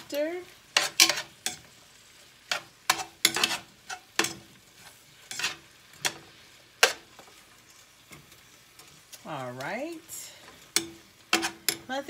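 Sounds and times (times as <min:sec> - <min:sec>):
faint sizzling: 0:00.0 - 0:12.0
metal tongs clattering on pan: 0:00.7 - 0:01.7, 0:02.5 - 0:04.5, 0:05.2 - 0:07.3, 0:08.1 - 0:12.0.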